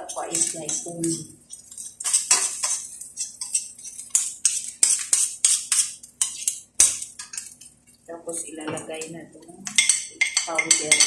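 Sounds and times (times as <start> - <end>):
metal ladle scraping frying pan: 0.0 - 6.6.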